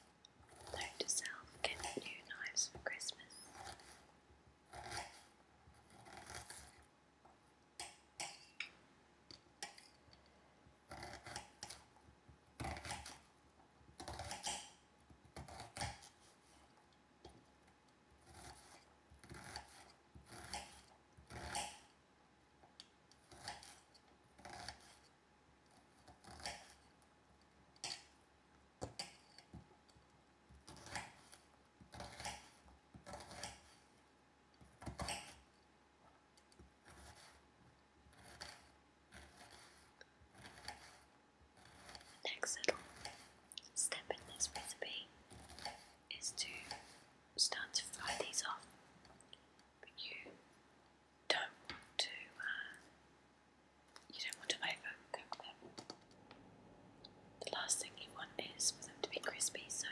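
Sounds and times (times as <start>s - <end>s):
knife cutting onion: 4.7s - 6.9s, 10.9s - 12.0s, 12.6s - 13.3s, 14.0s - 16.2s, 18.2s - 22.0s, 23.1s - 25.1s, 30.6s - 33.9s, 34.6s - 35.5s, 36.8s - 37.4s, 38.1s - 43.4s.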